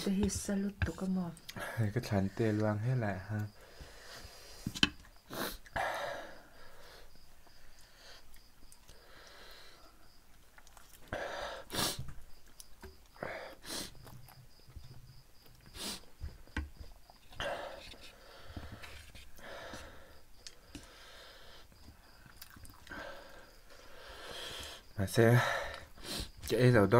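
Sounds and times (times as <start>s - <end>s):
people sniffling: 3.6s - 8.3s, 11.1s - 12.1s, 13.2s - 14.1s, 15.7s - 16.2s, 22.9s - 24.9s, 25.5s - 26.4s.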